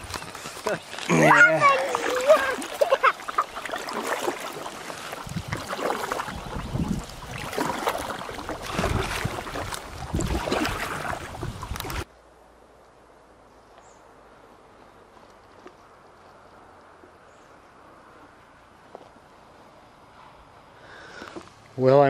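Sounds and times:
water splashing and sloshing: 0.0s - 12.1s.

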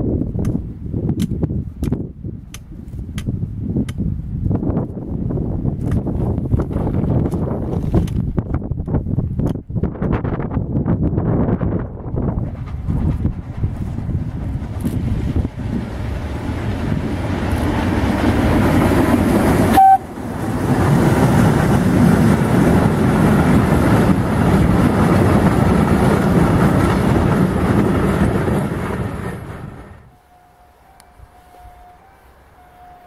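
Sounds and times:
train rumbling on rails: 0.0s - 33.0s
short sharp tone: 19.7s - 20.2s.

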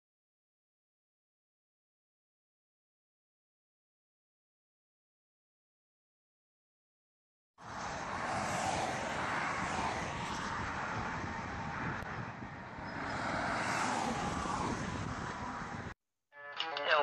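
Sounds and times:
truck passing on highway: 7.6s - 16.0s.

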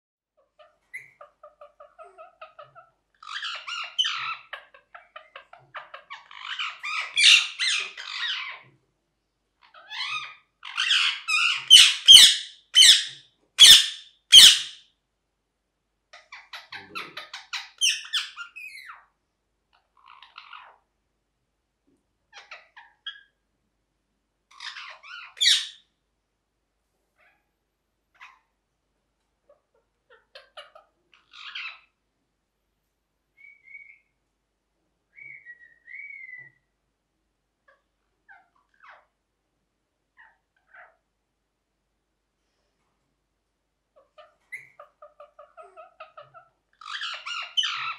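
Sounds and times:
parakeet squawking: 0.4s - 8.7s, 9.6s - 14.8s, 16.1s - 19.1s, 19.7s - 20.9s, 22.3s - 23.4s, 24.5s - 25.8s, 29.5s - 32.0s, 33.4s - 34.1s, 35.1s - 36.7s, 37.7s - 39.2s, 43.9s - 47.9s.

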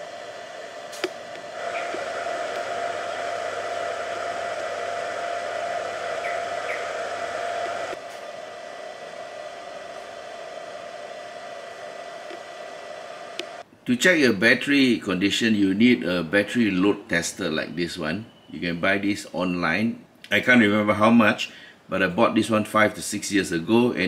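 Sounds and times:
charger cooling fan running: 0.0s - 13.7s
low mains hum: 0.0s - 24.0s.

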